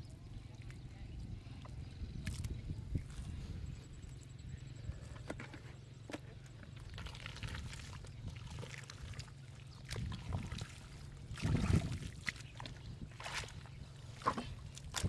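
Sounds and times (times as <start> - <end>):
mud and water splashing: 0.0 - 4.4, 6.1 - 15.0
water trickling: 6.7 - 15.0.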